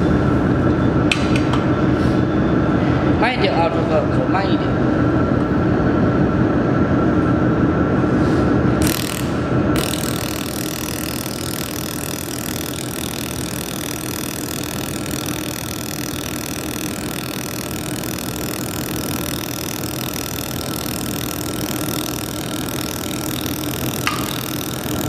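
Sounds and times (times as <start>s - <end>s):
machine hum: 0.0s - 25.0s
laser welder hissing: 8.8s - 25.0s.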